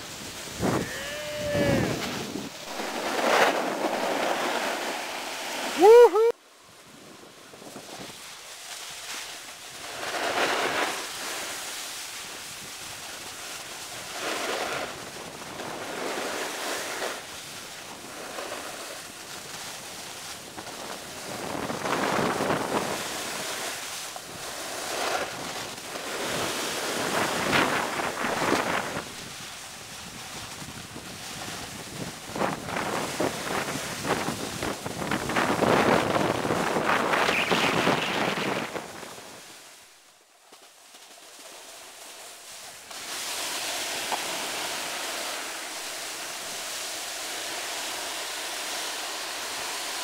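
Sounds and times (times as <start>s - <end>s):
wind on microphone: 0.0s - 4.8s, 21.0s - 23.4s, 25.0s - 39.5s
edges scraping over snow: 0.0s - 6.0s, 7.6s - 39.8s, 40.6s - 50.0s.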